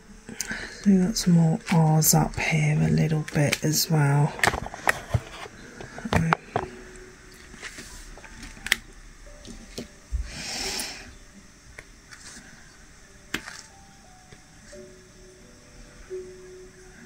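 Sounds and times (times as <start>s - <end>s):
rustling scrape: 4.3s - 6.0s.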